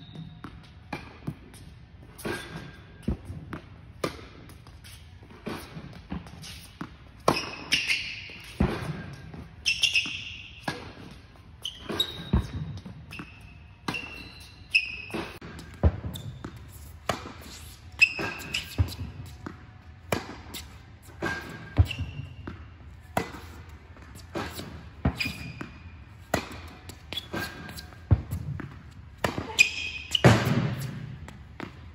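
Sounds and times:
sneaker squeaks: 0.0 - 31.9
ball bouncing on hard court: 5.4 - 31.9
tennis ball struck by racket: 15.1 - 31.8.

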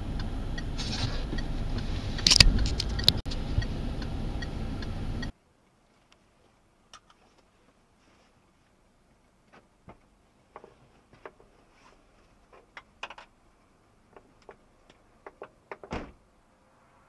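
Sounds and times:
deep thump: 15.9 - 16.2.

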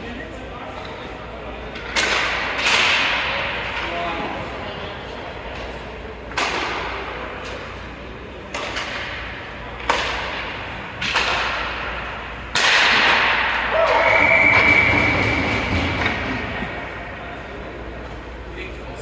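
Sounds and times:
hockey stick hitting puck: 1.7 - 3.9, 6.3 - 7.6, 8.4 - 16.5.

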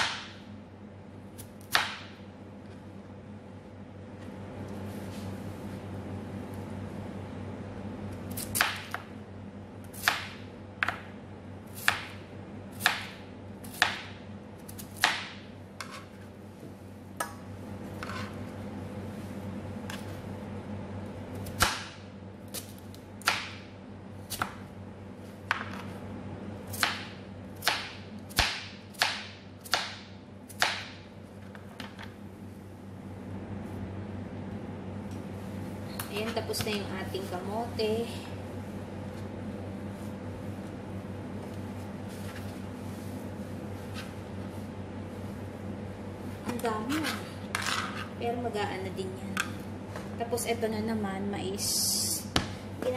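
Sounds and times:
steady low hum: 0.0 - 52.9
knife chopping on plastic board: 10.0 - 11.1.

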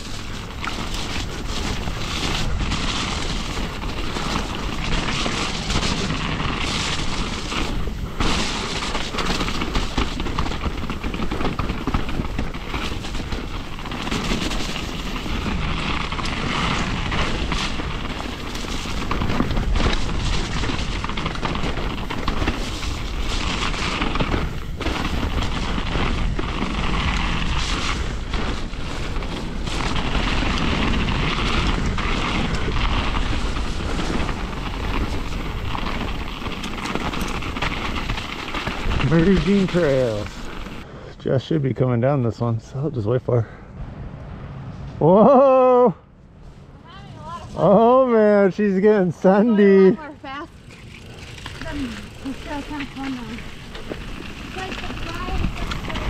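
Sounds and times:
bike rattling over bumps: 0.0 - 40.9, 46.9 - 56.0
bike tyres rolling over dirt: 0.0 - 43.2, 46.5 - 56.0
wind buffeting microphone: 50.5 - 56.0.

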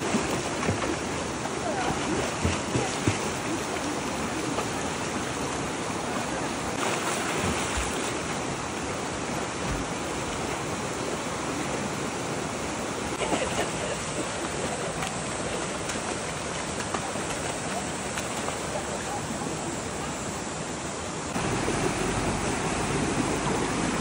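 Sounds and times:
stream water rushing: 0.0 - 24.0
children splashing in water: 1.6 - 4.9, 6.8 - 8.2.

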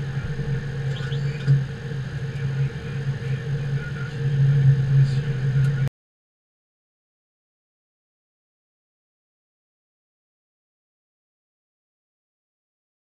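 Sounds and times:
steady low hum: 0.0 - 5.9.

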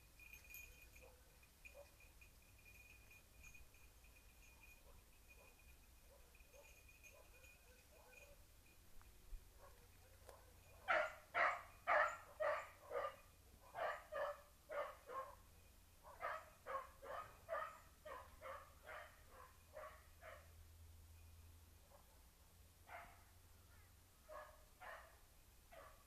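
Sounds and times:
hound baying: 4.5 - 8.4, 9.6 - 15.4, 16.1 - 20.5.

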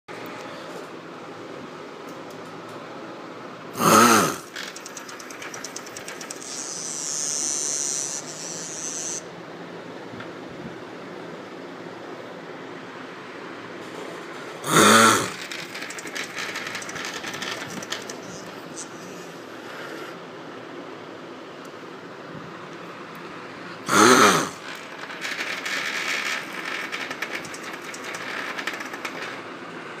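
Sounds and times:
short loud vocal sound: 3.8 - 4.6, 14.6 - 15.5, 23.9 - 24.7
vibration motor buzzing and rattling: 4.2 - 9.2, 15.2 - 19.4, 24.0 - 29.5.

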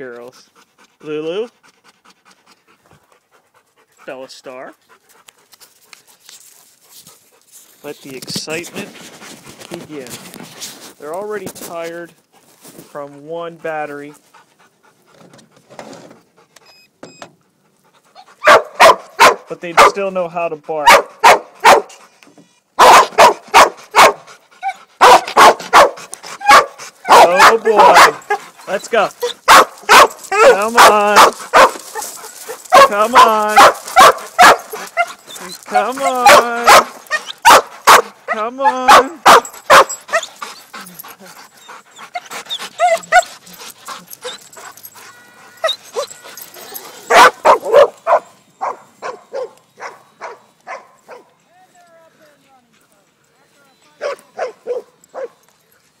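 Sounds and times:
dogs barking: 18.2 - 20.1, 20.7 - 22.0, 22.8 - 51.4, 54.0 - 55.4.

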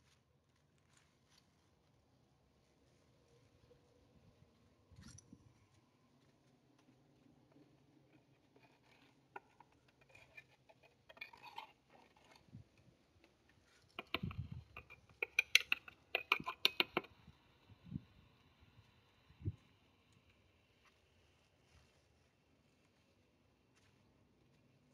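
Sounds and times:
metal trowel scraping and tapping: 8.1 - 17.3.

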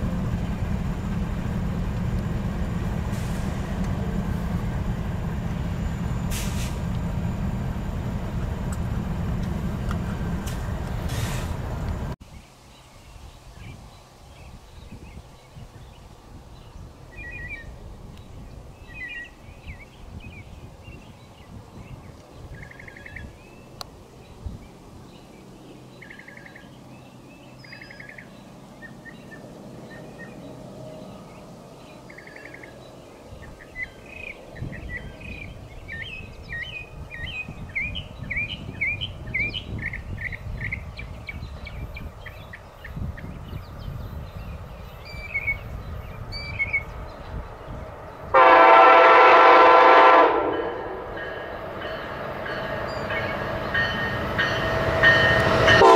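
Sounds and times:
songbirds singing and calling: 12.2 - 48.4, 51.2 - 55.8.

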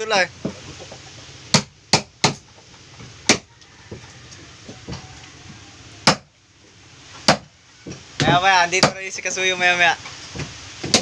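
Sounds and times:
hammer striking wood chisel: 1.5 - 2.5, 3.2 - 3.5, 6.0 - 6.3, 7.2 - 9.0, 10.4 - 11.0.

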